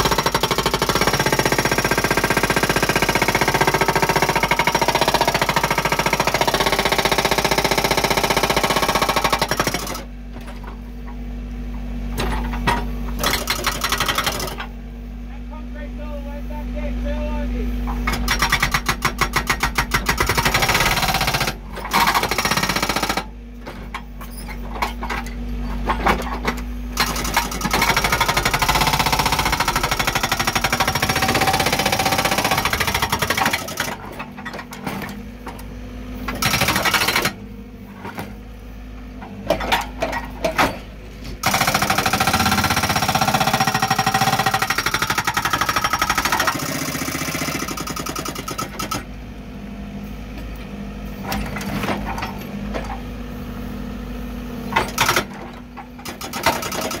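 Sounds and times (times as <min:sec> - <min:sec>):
hydraulic breaker hammering rock: 0:00.0 - 0:10.8, 0:12.2 - 0:14.7, 0:17.8 - 0:38.4, 0:39.2 - 0:49.1, 0:54.7 - 0:57.0
backhoe engine running: 0:00.0 - 0:57.0.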